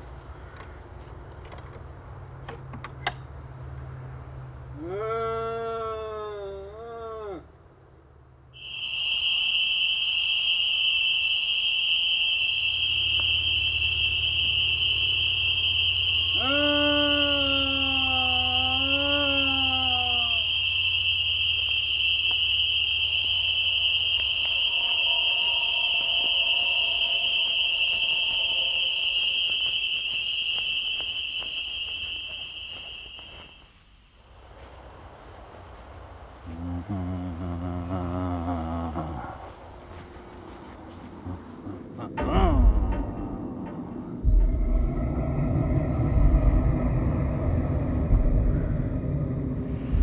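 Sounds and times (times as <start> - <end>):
low hum: 7.8 - 50.0
high-pitched whining tone: 8.6 - 33.7
wavering low tone: 39.9 - 50.0.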